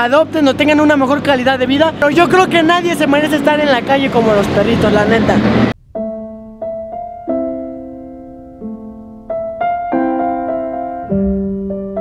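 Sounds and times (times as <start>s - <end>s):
piano playing slow chords: 5.5s - 12.0s.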